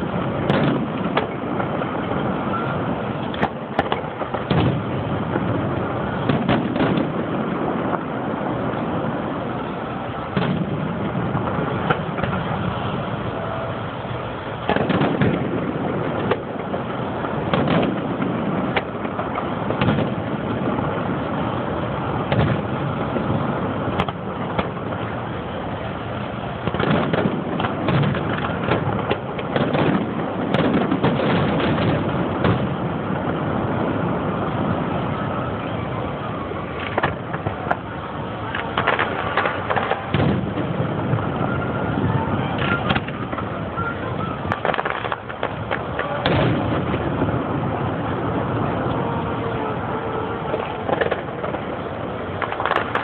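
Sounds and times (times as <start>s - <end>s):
firework shells bursting: 0.0s - 2.0s, 3.0s - 9.2s, 14.2s - 21.4s, 22.1s - 25.2s, 26.5s - 33.4s, 36.7s - 41.3s, 42.6s - 49.4s, 50.4s - 53.0s
steady background noise: 0.0s - 53.0s.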